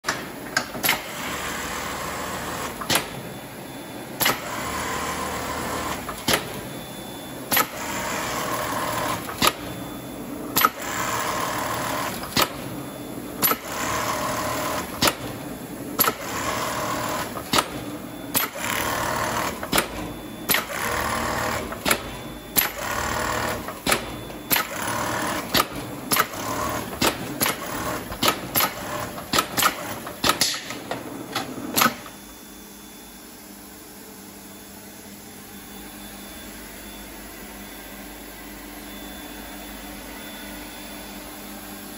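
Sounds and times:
stitching machine running: 0.8 - 2.8, 4.2 - 6.4, 7.5 - 9.6, 10.6 - 12.6, 13.4 - 15.3, 16.0 - 30.5
machine clacking: 16.0 - 32.1.

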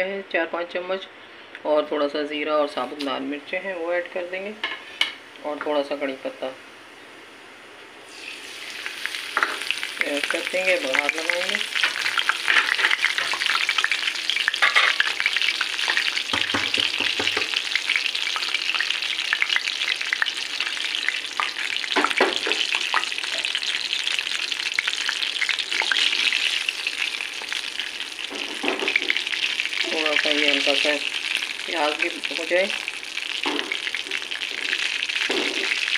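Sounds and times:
oil sizzling and crackling: 8.0 - 35.9.

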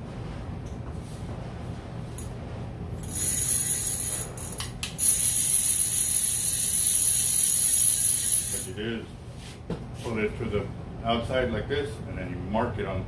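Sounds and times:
fishing reel clicker buzzing: 3.0 - 8.7.

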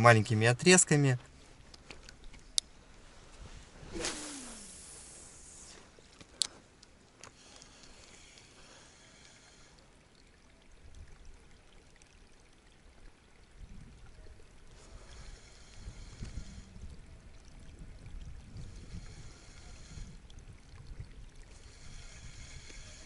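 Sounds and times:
wind rumbling on microphone: 3.0 - 5.8, 13.4 - 23.0
fishing reel cranking: 21.5 - 23.0.

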